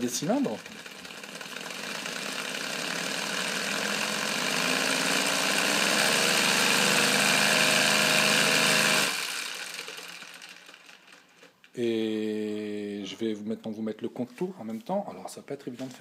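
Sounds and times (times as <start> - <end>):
compressed-air engine running: 0.0 - 11.1.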